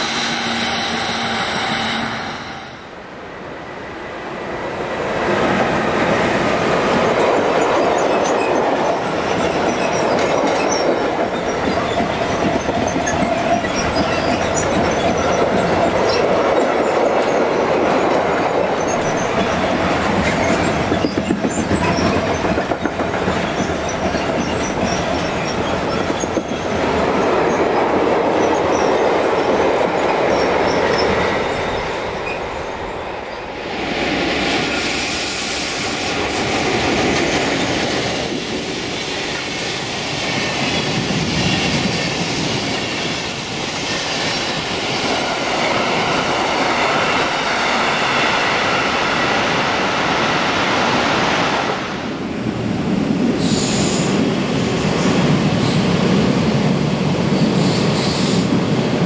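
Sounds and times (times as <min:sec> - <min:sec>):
train wheels clattering over rails: 0:06.0 - 0:32.0.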